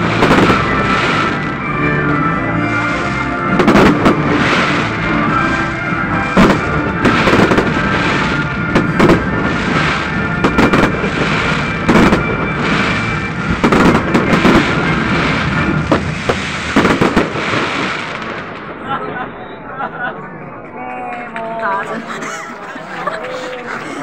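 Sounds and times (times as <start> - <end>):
firework crackling: 0.0 - 18.8.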